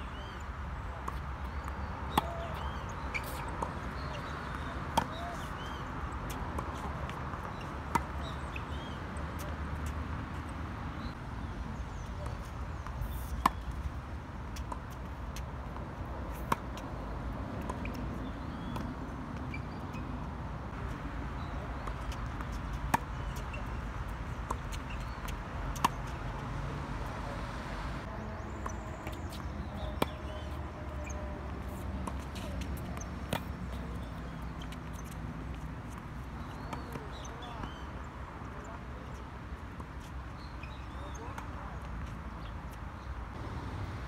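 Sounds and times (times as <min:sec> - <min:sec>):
tennis ball bouncing: 0:01.0 - 0:10.0, 0:14.5 - 0:17.0, 0:17.6 - 0:20.1, 0:21.4 - 0:26.4, 0:28.6 - 0:37.8.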